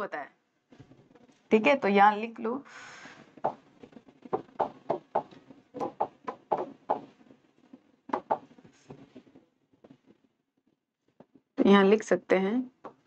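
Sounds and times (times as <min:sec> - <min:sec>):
stylus tapping on screen: 0:03.4 - 0:03.6, 0:04.2 - 0:07.2, 0:08.1 - 0:08.6.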